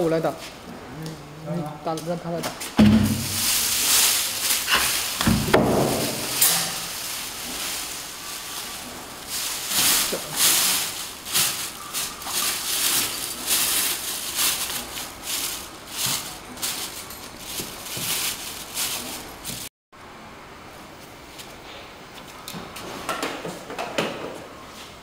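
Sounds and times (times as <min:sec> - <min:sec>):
plastic bag crinkling: 0:03.1 - 0:19.7.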